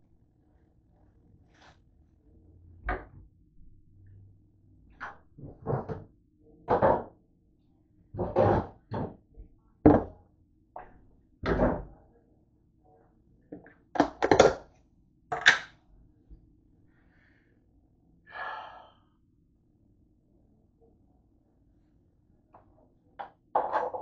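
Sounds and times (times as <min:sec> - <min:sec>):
objects knocking on kitchen counter: 0:05.4 - 0:06.1, 0:06.7 - 0:07.1, 0:08.2 - 0:09.2, 0:09.9 - 0:10.2, 0:13.6 - 0:14.6, 0:23.2 - 0:24.0.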